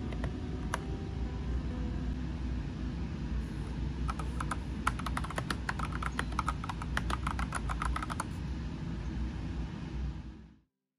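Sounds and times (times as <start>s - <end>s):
mechanical keyboard typing: 4.1s - 8.3s.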